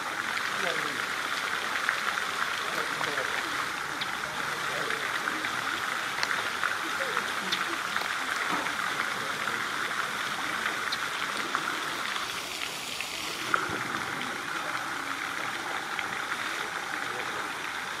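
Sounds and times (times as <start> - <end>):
steady background noise: 0.0 - 18.0.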